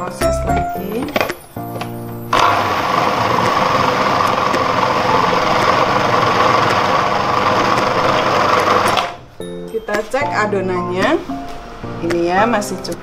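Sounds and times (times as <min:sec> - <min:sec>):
food processor running: 0:02.3 - 0:09.2.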